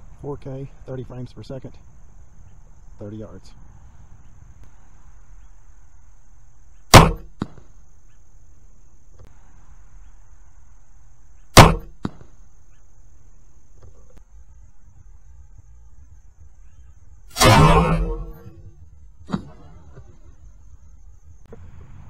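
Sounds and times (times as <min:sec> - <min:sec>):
bolt striking target: 0:06.9 - 0:07.7, 0:11.6 - 0:12.3, 0:17.3 - 0:18.7.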